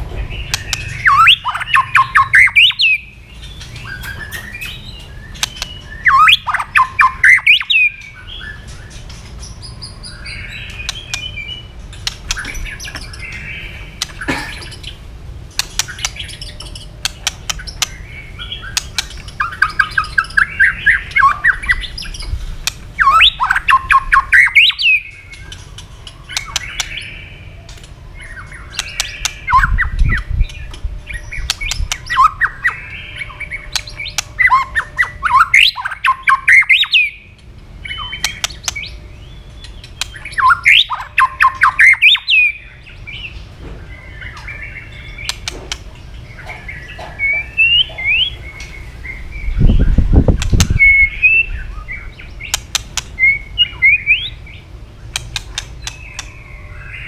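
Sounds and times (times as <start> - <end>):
bird singing fast repeated notes: 0.0 - 57.0
sharp clicking bird calls: 0.2 - 57.0.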